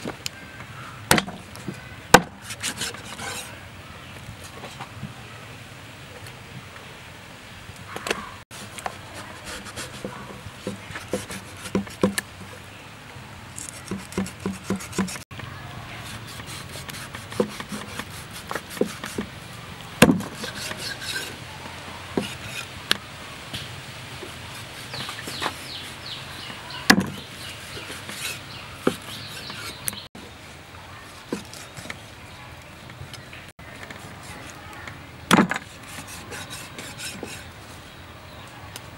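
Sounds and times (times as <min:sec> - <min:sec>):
birds chirping: 0:00.0 - 0:38.9
cleaver scraping and knocking: 0:01.1 - 0:03.6, 0:08.0 - 0:12.6, 0:13.6 - 0:15.4, 0:16.0 - 0:19.4, 0:20.0 - 0:21.4, 0:22.1 - 0:23.0, 0:23.6 - 0:30.1, 0:31.2 - 0:32.1, 0:33.6 - 0:37.8.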